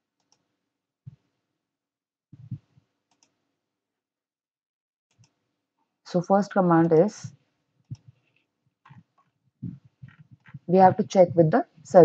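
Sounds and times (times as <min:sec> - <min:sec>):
computer mouse clicks: 0:00.2 - 0:00.4, 0:03.1 - 0:03.4, 0:05.1 - 0:05.4.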